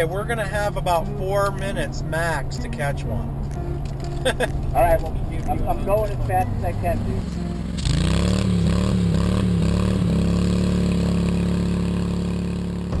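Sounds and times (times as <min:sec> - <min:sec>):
fire engine revving high: 0:07.1 - 0:13.0.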